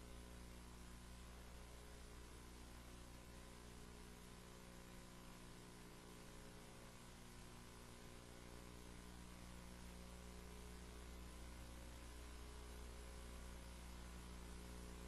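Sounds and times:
faint electrical hum: 0.0s - 15.0s
low hiss: 0.0s - 15.0s.

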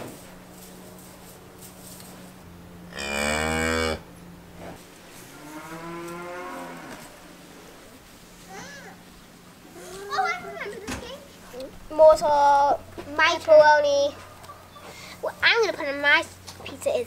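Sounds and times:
cow mooing: 2.9s - 4.1s, 5.3s - 7.2s.

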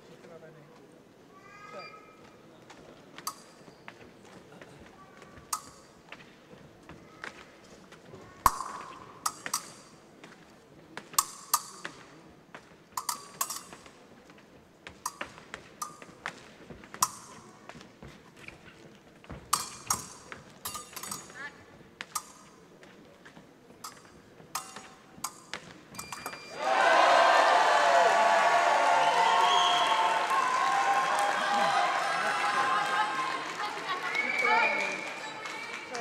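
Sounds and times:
fencing blades clashing: 3.2s - 3.7s, 5.5s - 6.0s, 8.4s - 10.4s, 11.0s - 14.1s, 14.8s - 17.8s, 19.3s - 22.7s, 23.8s - 26.6s.

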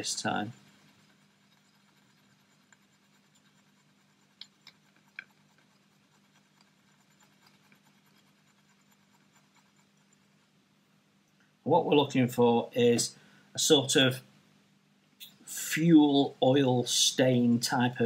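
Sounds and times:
stick mixing paint on palette: 0.0s - 10.5s.

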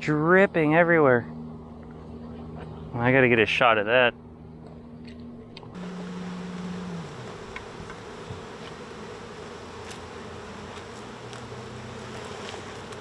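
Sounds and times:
bees buzzing: 5.7s - 13.0s
close bee buzz passing: 5.8s - 13.0s.

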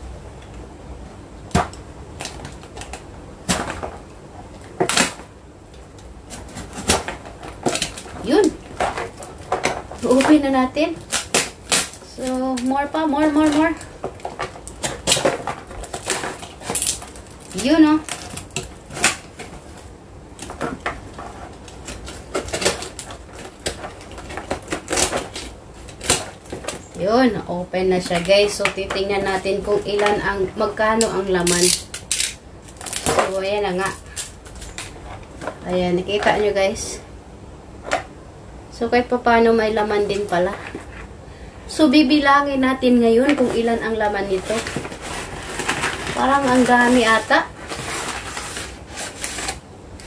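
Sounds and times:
tape and cardboard tearing: 4.6s - 5.3s, 6.2s - 36.4s, 43.2s - 50.0s.

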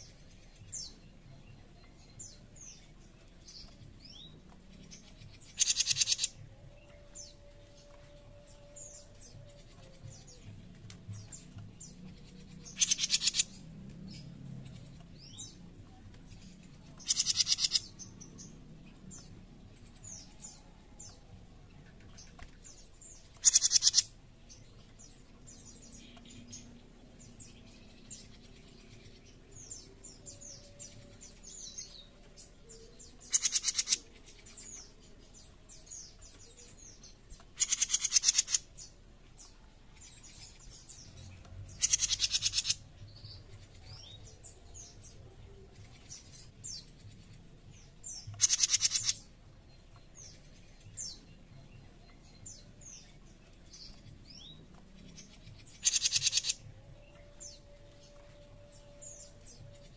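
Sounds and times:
songbird rasping rattle calls: 5.5s - 6.3s, 12.7s - 13.5s, 17.0s - 17.8s, 23.4s - 24.1s, 33.3s - 34.0s, 37.6s - 38.7s, 41.8s - 42.8s, 48.4s - 49.2s, 55.8s - 56.6s
faint high bird chirps: 23.4s - 24.0s, 55.8s - 59.9s.

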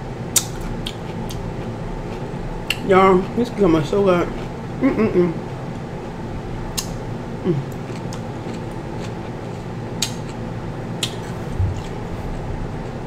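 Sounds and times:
steady background hum: 0.0s - 13.0s
crunchy chewing of cucumber: 5.3s - 13.0s.

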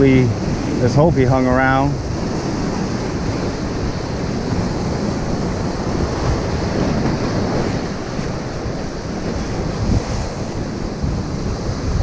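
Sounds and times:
ocean surf breaking on rocks: 0.0s - 12.0s
wind rumbling on microphone: 0.0s - 12.0s.

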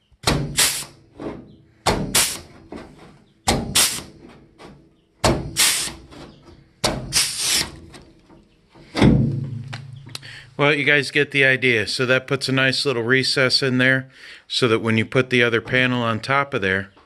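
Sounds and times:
pneumatic tool clacking: 0.2s - 2.9s, 3.5s - 8.0s
air hiss: 0.6s - 1.0s, 2.1s - 2.5s, 3.7s - 4.1s, 5.5s - 6.0s, 7.1s - 7.7s.

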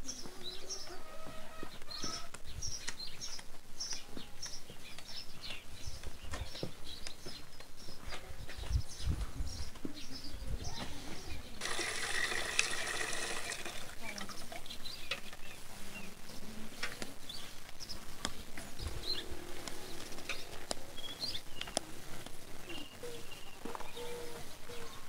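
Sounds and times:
tap water pouring into metal bucket: 11.6s - 14.7s.

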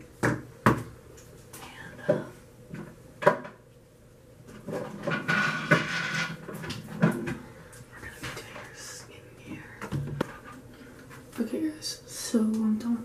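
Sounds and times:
objects knocking and thudding: 0.0s - 1.0s, 2.0s - 3.6s, 4.5s - 7.5s, 9.8s - 11.3s.

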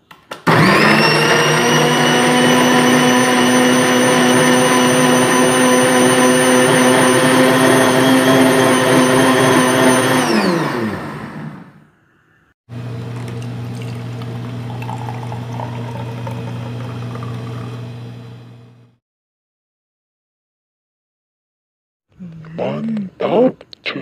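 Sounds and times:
electric blender motor running: 0.5s - 11.8s, 12.8s - 19.0s
low hum of pouring drink: 12.7s - 18.9s.

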